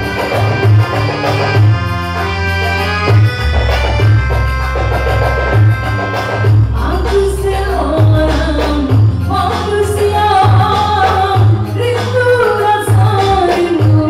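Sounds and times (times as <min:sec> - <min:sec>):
drum and bass beat: 0:00.0 - 0:14.0
keyboard instrumental with brass melody: 0:00.0 - 0:14.0.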